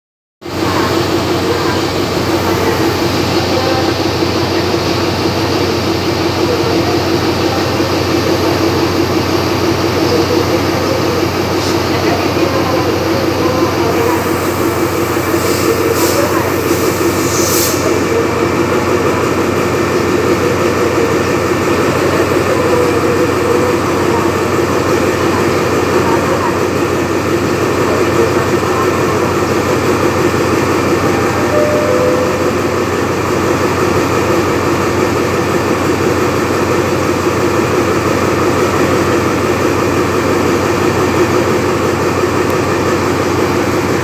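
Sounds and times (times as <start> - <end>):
locomotive engine idling: 0.5 - 44.0
brief air hisses: 17.1 - 17.9.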